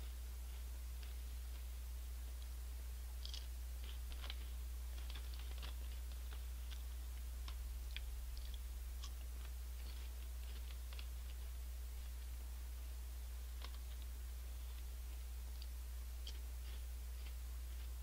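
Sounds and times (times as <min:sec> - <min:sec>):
low electrical hum: 0:00.0 - 0:18.0
chips crunching: 0:03.2 - 0:12.2.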